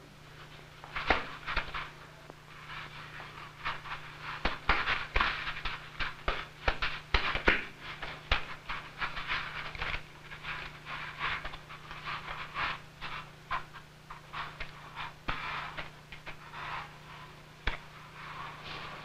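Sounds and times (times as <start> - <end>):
knocks of scuffling: 0.3 - 19.0.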